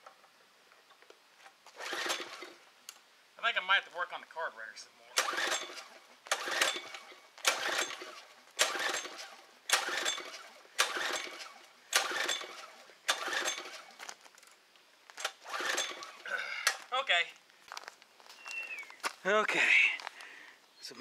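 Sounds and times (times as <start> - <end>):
recoil starter pulled: 1.7 - 2.6, 5.1 - 14.6, 15.2 - 16.9
engine cranking without starting: 1.7 - 2.7, 5.1 - 14.6, 15.2 - 16.9.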